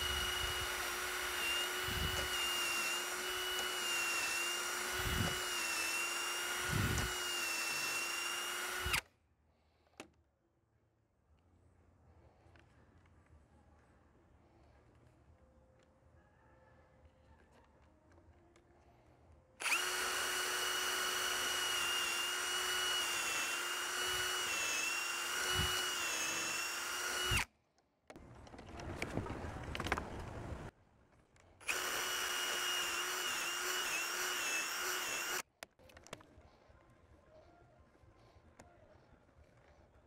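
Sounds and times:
cordless drill boring wood: 0.0s - 9.1s, 19.6s - 27.5s, 31.6s - 35.4s.

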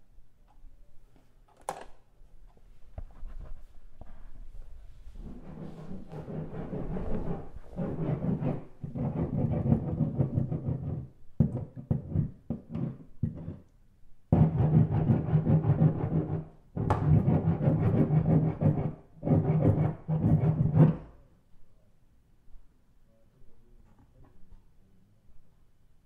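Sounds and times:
heavy scraping against a wall: 3.2s - 13.7s.

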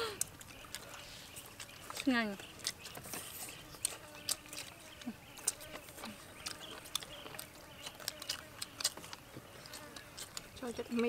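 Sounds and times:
chewing and mouth noises: 0.0s - 11.0s.

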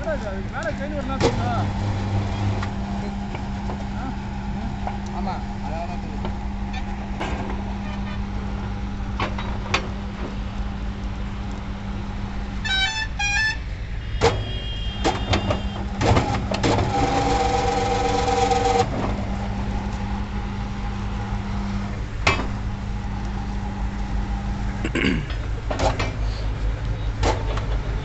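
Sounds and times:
bending machine humming: 0.0s - 28.0s
loud pitched drone: 1.0s - 13.8s, 15.8s - 25.6s.

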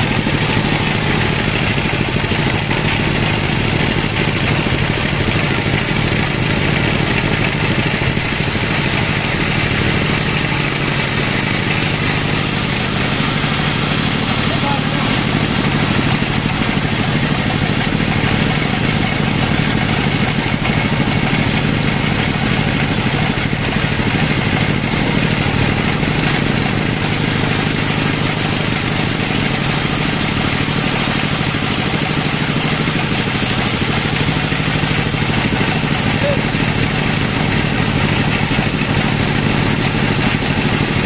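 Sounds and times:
band saw cutting wood: 0.0s - 41.0s.

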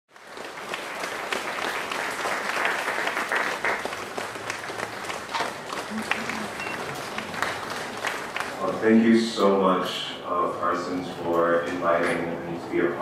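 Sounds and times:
audience applauding: 0.1s - 9.2s.

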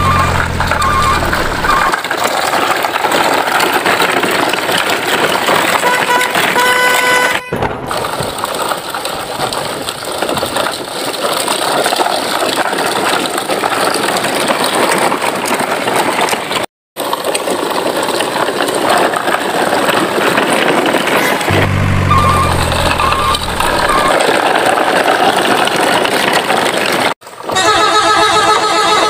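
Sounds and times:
truck engine running: 0.0s - 6.8s, 20.8s - 26.0s.

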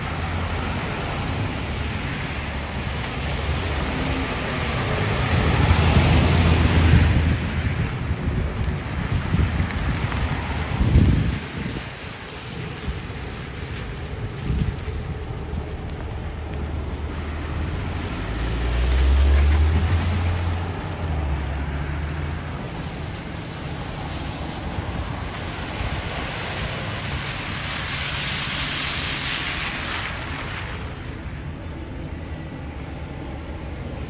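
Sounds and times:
passing vehicle tyre hiss: 9.2s - 33.6s
low engine rumble: 12.3s - 26.0s.

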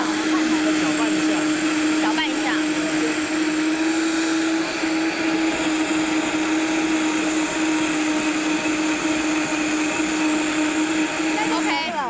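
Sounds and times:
blender running: 0.0s - 12.0s.

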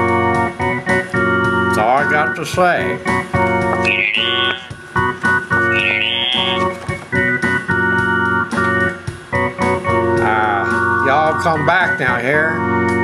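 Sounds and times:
organ chords: 0.0s - 13.0s
high sliding note: 3.8s - 4.8s, 5.6s - 6.7s.

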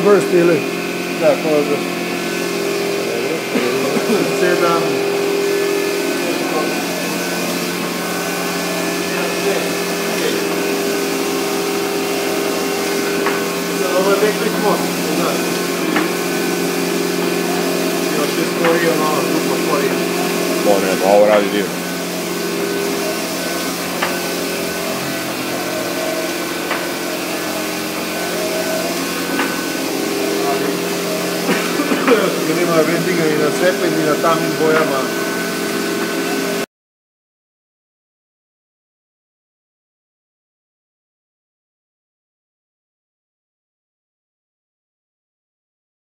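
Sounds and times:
printer humming and whining: 0.0s - 36.6s.

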